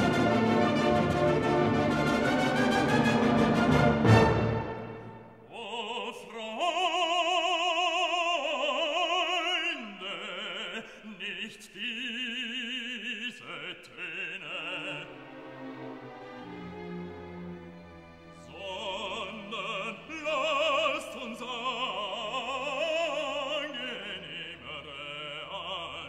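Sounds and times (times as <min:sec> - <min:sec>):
orchestral chord: 0:00.0 - 0:05.3
opera solo voice singing: 0:05.4 - 0:15.6, 0:18.4 - 0:26.0.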